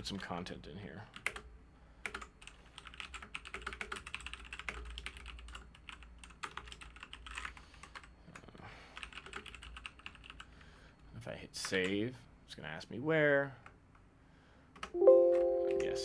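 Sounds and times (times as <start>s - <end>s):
typing on computer keyboard: 1.1s - 10.6s.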